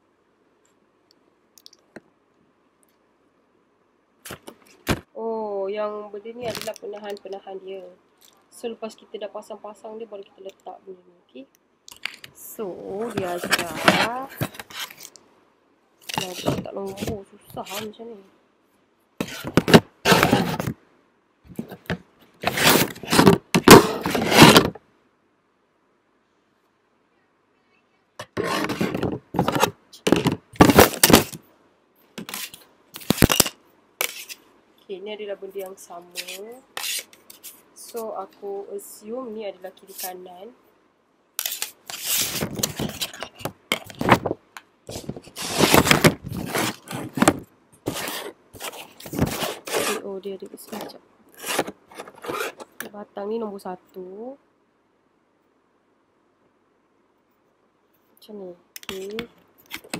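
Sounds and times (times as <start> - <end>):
board panels scraping together: 19.2 - 20.7, 21.6 - 24.8, 28.2 - 31.4, 41.4 - 44.3, 44.9 - 50.1, 50.7 - 52.8.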